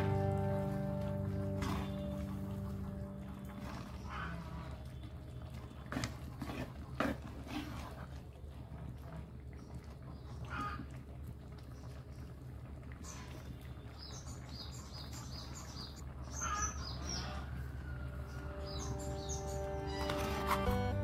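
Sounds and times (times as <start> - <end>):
steady low hum: 0.0 - 5.8
birds chirping: 0.0 - 6.9, 13.0 - 21.0.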